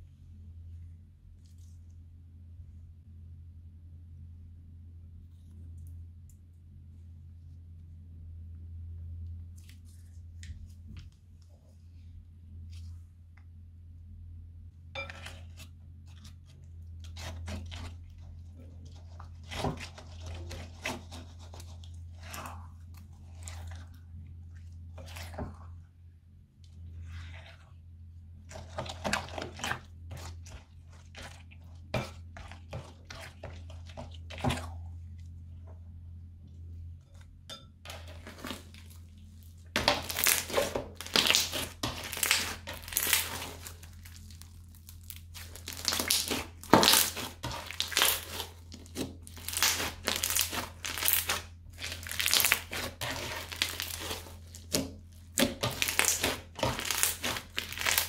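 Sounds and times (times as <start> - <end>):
spatula stirring slime: 0.0 - 2.1, 9.2 - 13.3, 15.0 - 58.0
crunchy slime crackling and popping: 37.9 - 58.0.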